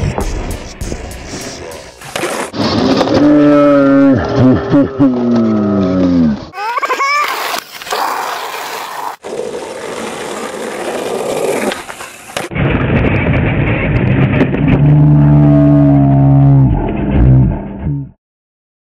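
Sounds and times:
skateboard wheels rolling on concrete: 0.0 - 14.9.

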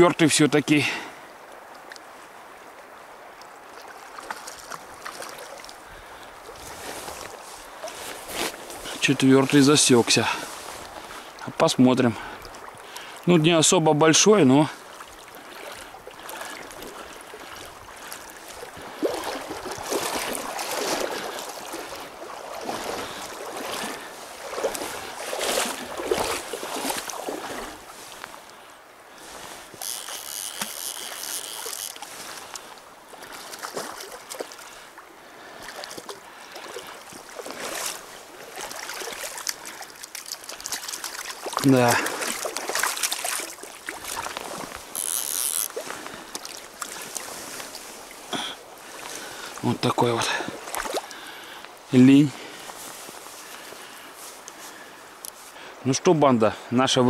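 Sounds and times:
river water rushing: 0.0 - 56.8
fish splashing: 3.8 - 8.9, 14.9 - 28.3, 29.4 - 34.9, 35.5 - 49.6, 50.5 - 51.6.

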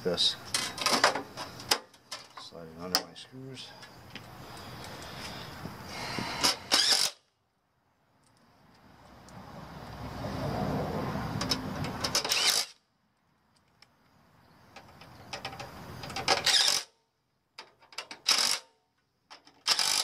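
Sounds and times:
impact driver tightening screws: 6.2 - 7.3, 11.9 - 12.8, 15.4 - 17.0, 18.0 - 18.7, 19.4 - 20.0.

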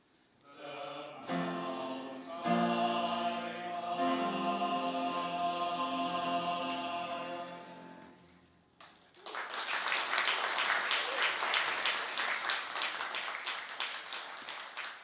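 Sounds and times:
audience applauding: 8.8 - 15.0.

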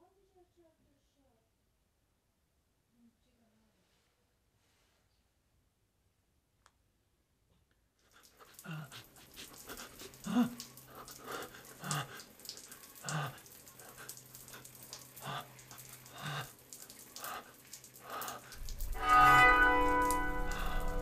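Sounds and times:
person breathing heavily: 8.2 - 18.9
low steady hum: 8.6 - 21.0.

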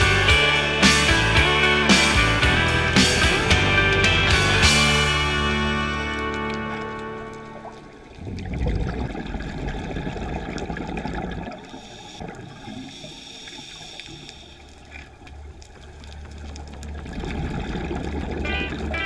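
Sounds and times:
underwater rumble and bubbles: 5.5 - 19.0.

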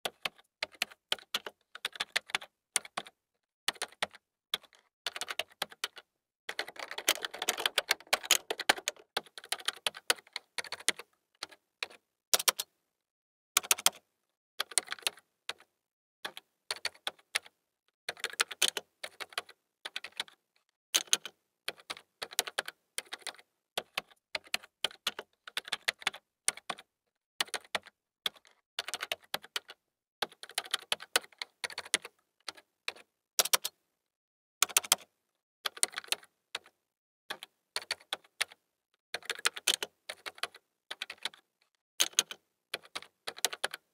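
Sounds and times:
keyboard typing clicks: 3.7 - 12.7, 13.6 - 14.0, 34.6 - 35.0, 42.0 - 43.8.

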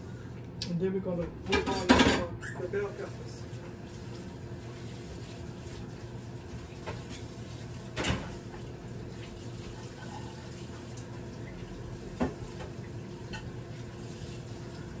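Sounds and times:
tap running into a sink: 12.0 - 13.5.

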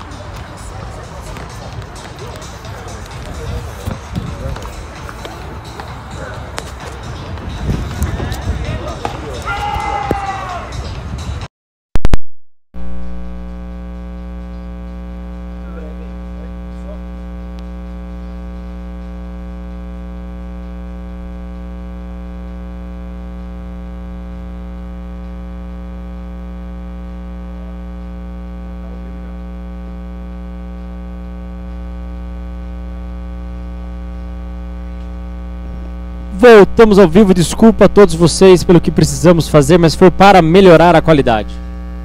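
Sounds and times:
electrical mains hum: 12.8 - 42.0.

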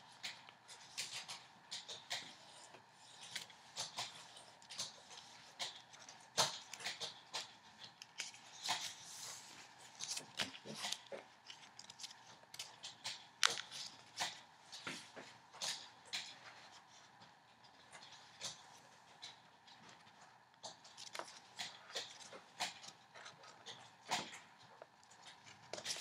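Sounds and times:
paper crackling and rustling: 0.2 - 17.1, 18.2 - 26.0.

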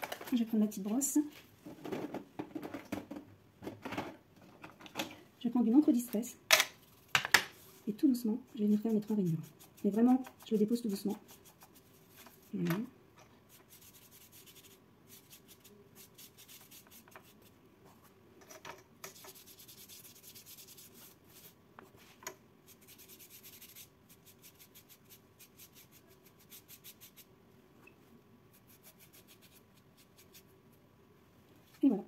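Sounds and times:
small brush rubbing on card: 8.5 - 12.6, 13.5 - 17.6, 19.1 - 22.1, 22.7 - 27.3, 28.5 - 30.5.

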